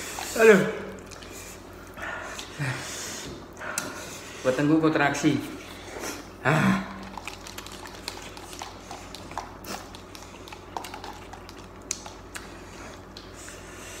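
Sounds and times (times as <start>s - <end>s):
steady low hum: 0.0s - 14.0s
soft chewing clicks: 7.0s - 13.6s.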